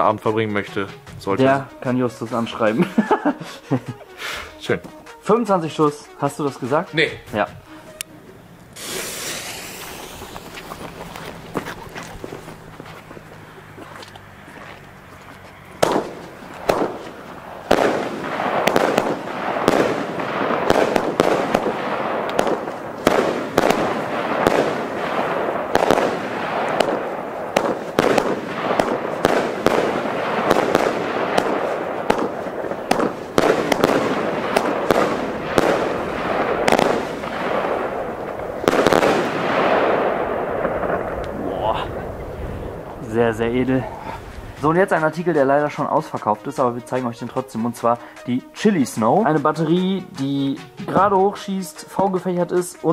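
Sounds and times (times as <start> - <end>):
continuous rushing noise: 8.3 - 45.2
fireworks bangs: 8.8 - 45.6, 48.8 - 51.5.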